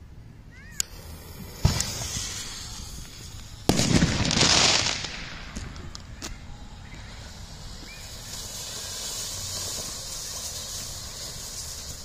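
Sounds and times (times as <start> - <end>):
firework fountain rushing hiss: 0.7 - 12.0
fuse hissing and sputtering: 0.8 - 3.8, 6.0 - 12.0.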